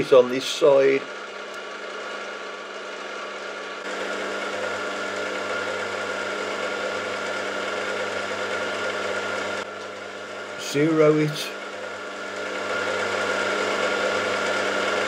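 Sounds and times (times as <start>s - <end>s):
milling machine humming: 0.0s - 15.0s.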